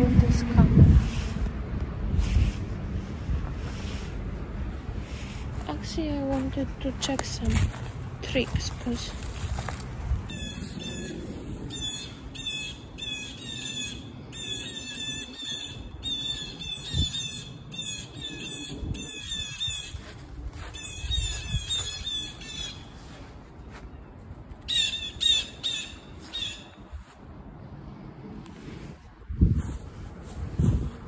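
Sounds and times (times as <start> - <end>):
bird squawking: 10.3 - 20.0, 20.8 - 22.9, 24.7 - 26.8.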